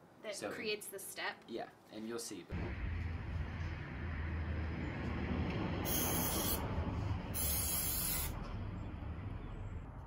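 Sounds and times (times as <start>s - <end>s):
aerosol spray hissing: 5.9s - 6.6s, 7.4s - 8.4s.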